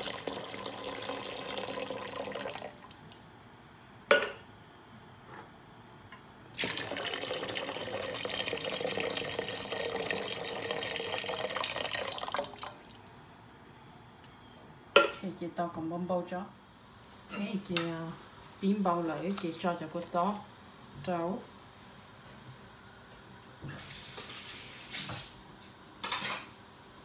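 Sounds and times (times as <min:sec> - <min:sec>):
liquid pouring into a pot: 0:00.0 - 0:03.0, 0:06.6 - 0:13.2.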